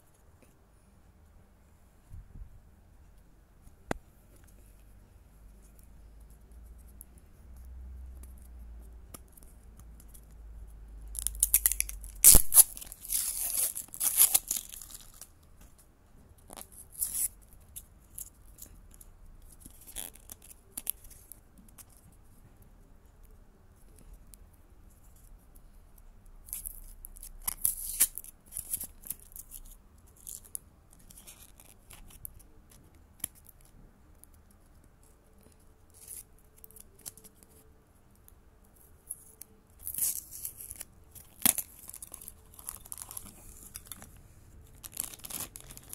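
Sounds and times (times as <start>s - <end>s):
shrink-wrap crinkling and ripping: 11.2s - 15.3s, 26.5s - 29.6s, 39.8s - 44.1s, 44.7s - 45.9s.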